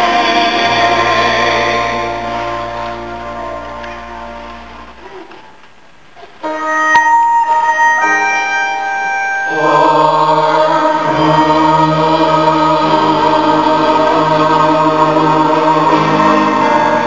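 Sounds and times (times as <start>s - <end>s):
group singing: 0.0s - 3.0s, 9.5s - 17.0s
low bass notes: 0.0s - 5.0s
instrumental accompaniment: 0.0s - 17.0s.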